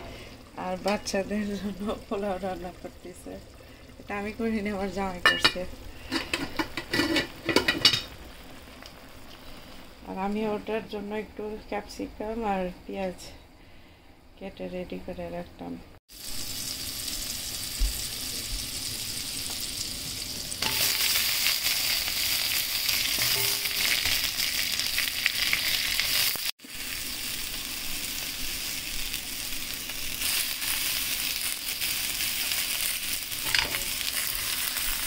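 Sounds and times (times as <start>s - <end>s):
onion and pepper sizzling in a pan: 0.0s - 11.0s, 16.1s - 35.0s.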